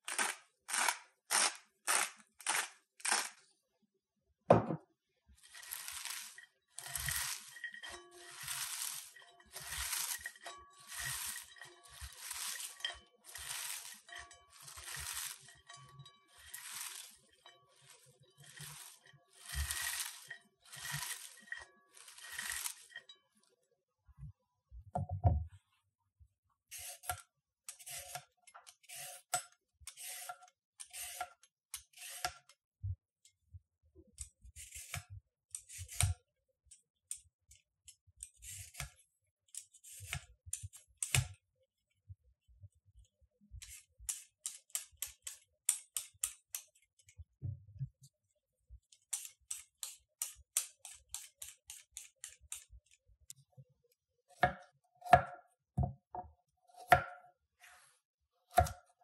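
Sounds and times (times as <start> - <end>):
vegetable peeler scraping carrots: 0.0 - 3.5, 5.4 - 23.0, 26.7 - 32.5, 34.2 - 36.2, 38.2 - 41.3, 43.6 - 47.1, 48.9 - 53.0.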